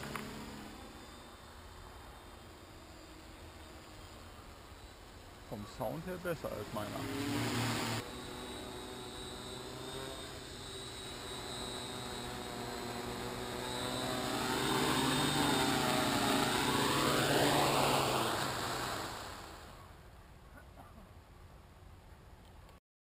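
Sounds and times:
quadcopter propellers whirring: 0.0 - 20.1.

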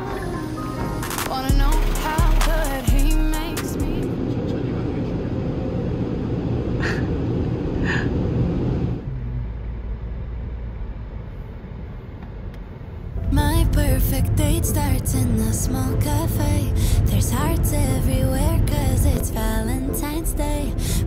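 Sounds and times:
car wash air dryers blowing: 1.4 - 9.1
low rumble of car driving: 1.5 - 21.0.

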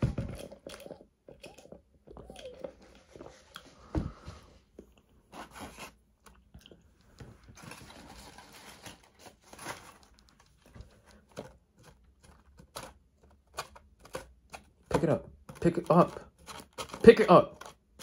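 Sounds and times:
person chewing food: 0.0 - 5.3, 5.9 - 7.6, 10.1 - 17.0.

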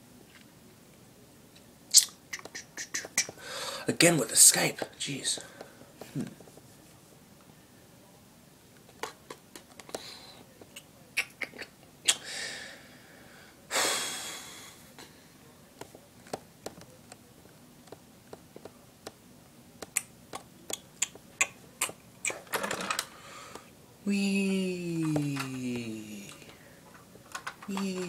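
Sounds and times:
loud breaths or sighs: 3.4 - 3.9, 12.2 - 14.8
person humming: 24.0 - 26.6, 27.7 - 28.0.

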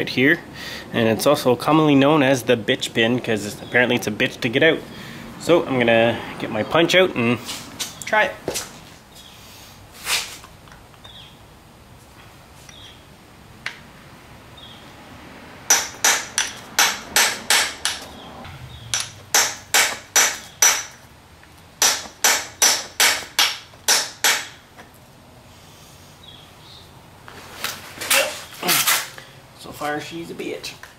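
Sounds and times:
hammer striking metal punch: 15.7 - 18.2, 18.9 - 21.0, 21.8 - 24.6.

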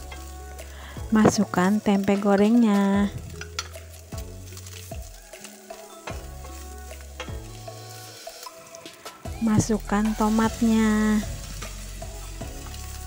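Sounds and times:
stir-fry sizzling in oil: 0.0 - 13.0
spatula knocking and scraping wok: 1.1 - 3.9, 7.1 - 7.5.

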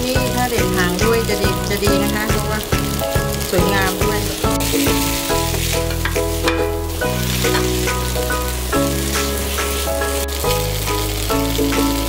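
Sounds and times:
background music with bass: 0.0 - 12.0
noodles sizzling in wok: 0.0 - 12.0
utensils scraping pan: 4.6 - 8.0.

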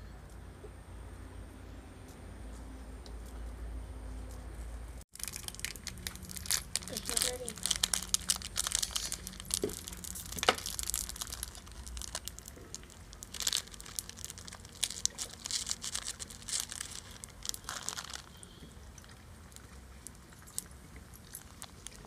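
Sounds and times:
plastic wrapper crinkling and tearing: 5.1 - 22.0.

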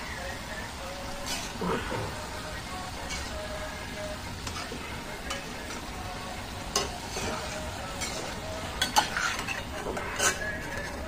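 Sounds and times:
pastries sizzling in ghee: 0.0 - 11.0
steel spoon clinking against pan: 6.7 - 7.4, 8.0 - 10.9.

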